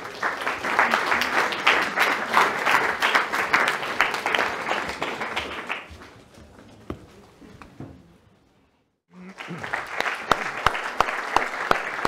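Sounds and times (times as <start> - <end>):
audience applauding: 0.0 - 6.2, 9.1 - 12.0.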